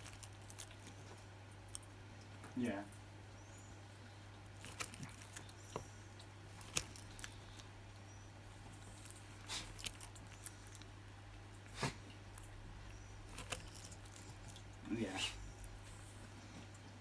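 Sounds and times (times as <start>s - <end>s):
lizard snapping and chewing clicks: 0.0s - 2.6s, 4.4s - 7.8s, 8.8s - 11.0s, 13.2s - 14.8s
steady low hum: 0.0s - 17.0s.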